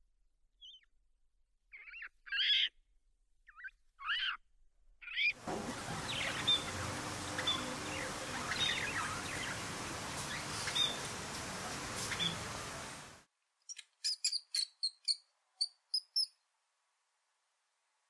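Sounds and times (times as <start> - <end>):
budgerigars chirping: 1.7 - 2.7, 5.0 - 11.2, 12.1 - 12.6
steady hiss: 5.4 - 13.3.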